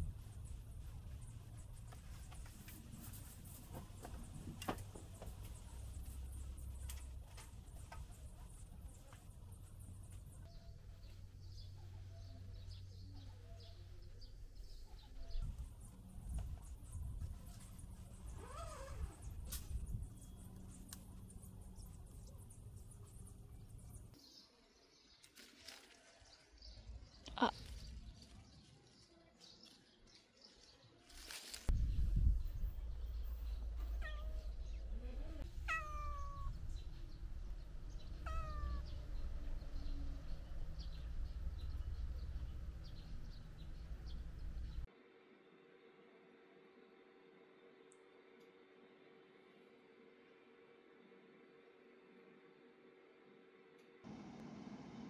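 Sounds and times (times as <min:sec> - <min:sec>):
low outdoor hum: 0:00.0 - 0:25.0, 0:31.6 - 0:55.0
faint bird chirps: 0:05.6 - 0:25.0
kitten meowing: 0:34.0 - 0:34.5, 0:35.7 - 0:36.6, 0:38.2 - 0:38.9.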